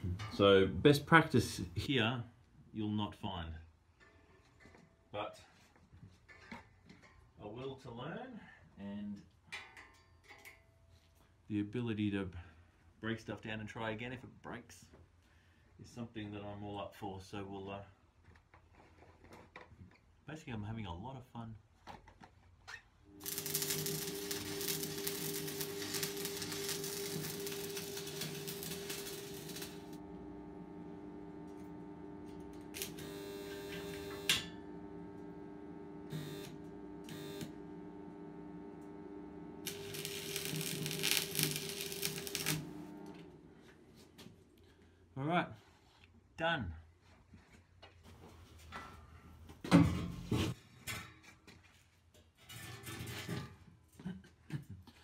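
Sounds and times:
welding arc crackle: 23.1 - 43.2
steady hum: 23.2 - 43.6.

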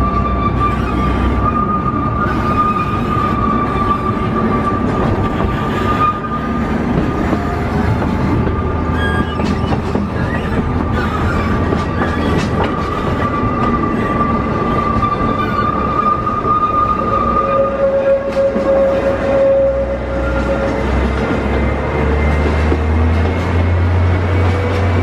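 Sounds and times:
high wheel squeal: 0.0 - 25.0
train running rumble: 0.0 - 25.0
wheels clicking over rail joints: 2.2 - 16.6.

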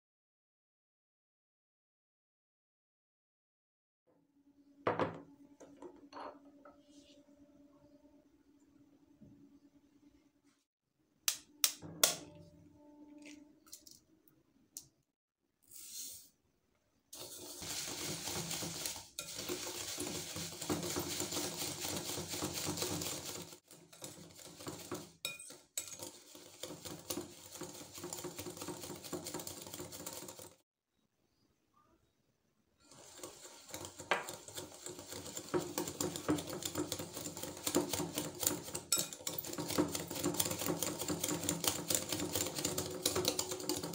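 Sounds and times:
whisk beating in glass bowl: 17.2 - 30.6, 32.9 - 43.9.

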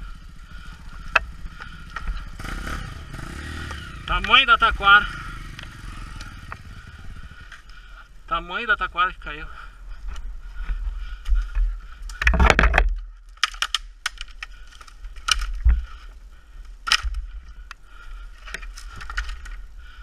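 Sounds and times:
motorcycle engine idling: 0.0 - 12.4.

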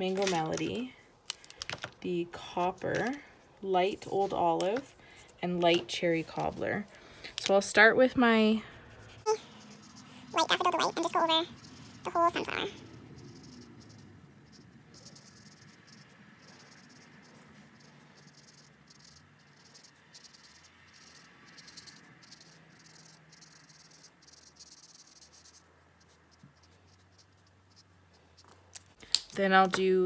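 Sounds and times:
marker scratching on card: 8.7 - 29.0.

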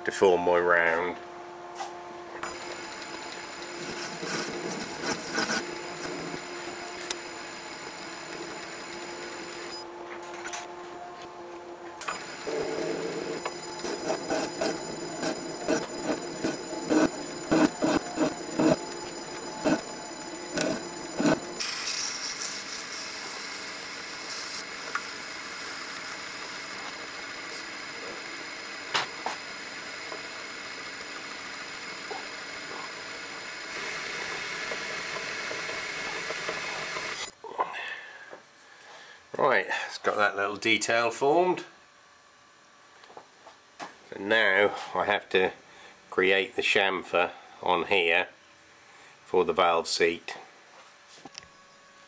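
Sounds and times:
metal lathe hum and whine: 0.8 - 37.4.

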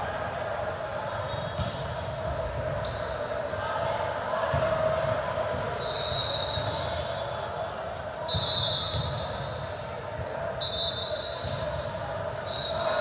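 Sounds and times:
shoes squeaking on court floor: 1.2 - 3.5, 5.7 - 9.8, 10.6 - 13.0
volleyball hits: 1.3 - 3.1, 4.5 - 6.8, 8.3 - 9.4, 11.0 - 12.1.

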